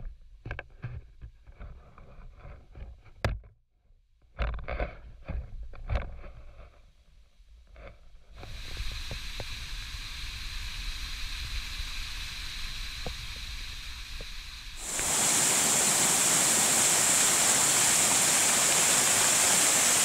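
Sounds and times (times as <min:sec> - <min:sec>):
waterfall splashing into pool: 0:08.5 - 0:20.0.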